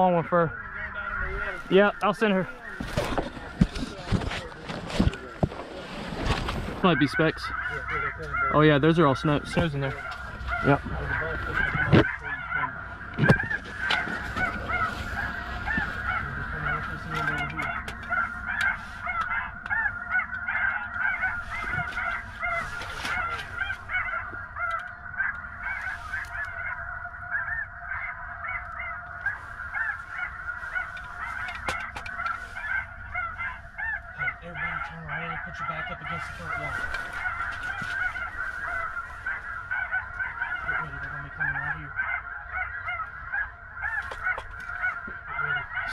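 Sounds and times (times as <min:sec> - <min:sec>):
geese calling: 0:00.0 - 0:45.9.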